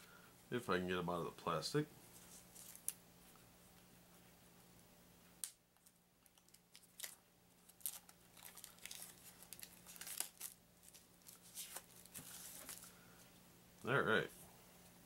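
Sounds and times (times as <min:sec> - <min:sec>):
plastic wrapping crinkling and tearing: 0:02.3 - 0:03.0, 0:06.2 - 0:12.9.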